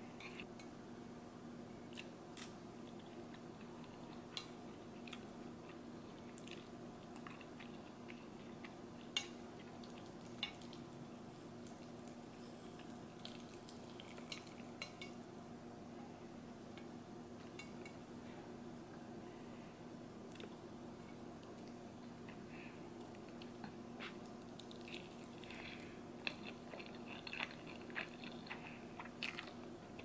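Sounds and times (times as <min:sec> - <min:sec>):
chewing: 0:01.9 - 0:15.2, 0:23.0 - 0:30.0.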